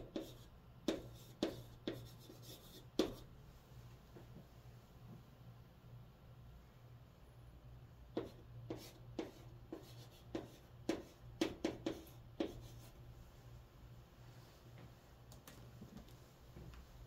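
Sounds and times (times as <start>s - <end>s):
chalk tapping and scraping on board: 0.0s - 3.3s, 8.2s - 12.9s.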